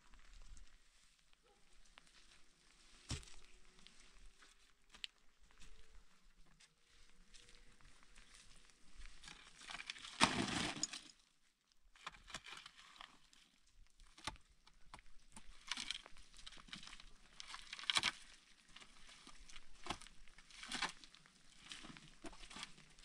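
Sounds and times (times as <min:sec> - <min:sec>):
digging tool scraping stony earth: 0:09.2 - 0:11.2, 0:15.3 - 0:23.0.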